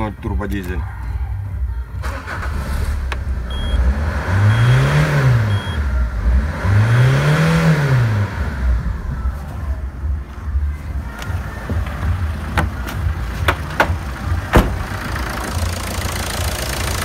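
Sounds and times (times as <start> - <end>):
diesel engine idling and revving: 1.4 - 17.0
short high beeps: 4.5 - 4.9, 5.5 - 5.8.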